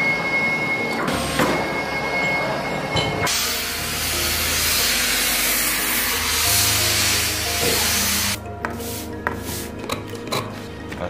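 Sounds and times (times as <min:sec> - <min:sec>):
steam iron hissing: 0:03.3 - 0:09.7.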